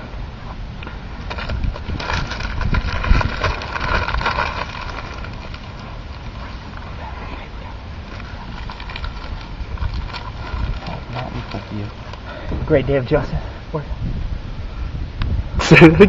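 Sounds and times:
low wind rumble: 0:00.0 - 0:16.0
microphone handling noise: 0:00.9 - 0:15.7
plastic wrapper crinkling: 0:01.2 - 0:07.0, 0:08.0 - 0:12.2.

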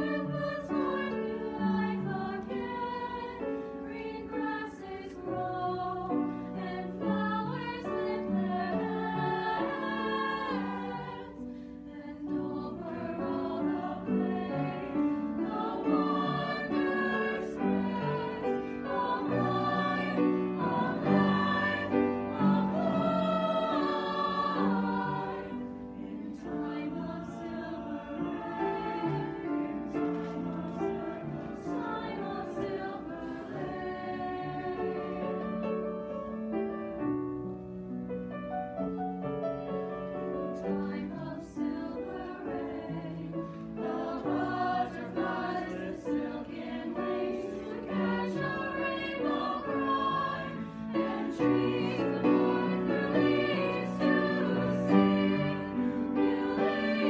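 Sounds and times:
chamber choir singing: 0:00.0 - 0:37.6, 0:39.2 - 0:57.0
piano accompaniment: 0:12.3 - 0:57.0.

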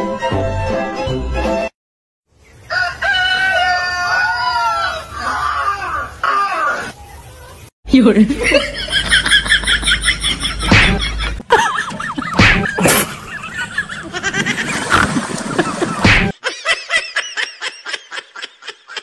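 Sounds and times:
person laughing and snickering: 0:08.4 - 0:19.0.

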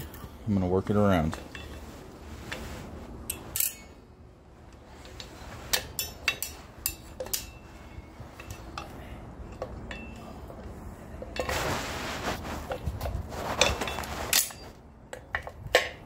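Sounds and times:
scraping rustle: 0:01.2 - 0:04.1, 0:04.7 - 0:08.8, 0:11.3 - 0:14.8
metal brake parts clinking: 0:03.2 - 0:04.0, 0:05.0 - 0:11.5, 0:13.6 - 0:16.0.

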